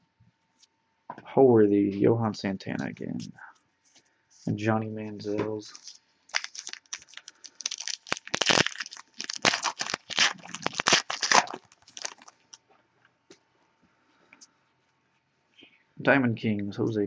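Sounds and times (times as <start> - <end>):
plastic wrapper crinkling and tearing: 5.6 - 12.6.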